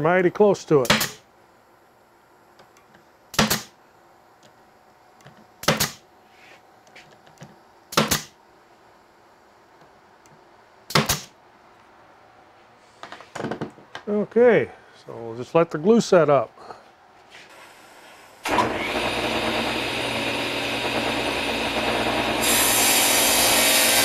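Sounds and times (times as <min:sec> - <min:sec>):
nail gun firing: 0:00.8 - 0:01.2, 0:03.3 - 0:03.7, 0:05.6 - 0:06.0, 0:07.9 - 0:08.4, 0:10.9 - 0:11.3.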